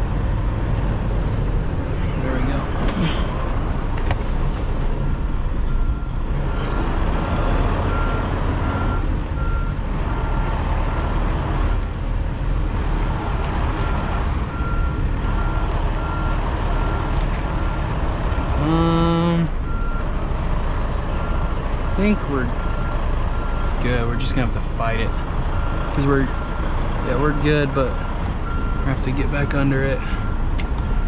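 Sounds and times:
truck diesel engine running: 0:02.8 - 0:28.8
reversing alarm beeping: 0:07.9 - 0:10.6, 0:13.8 - 0:17.8, 0:27.3 - 0:28.9.

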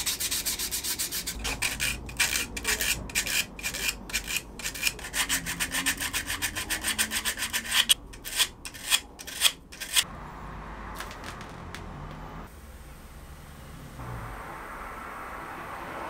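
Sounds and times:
sanding scratchy strokes: 0:00.0 - 0:10.1.

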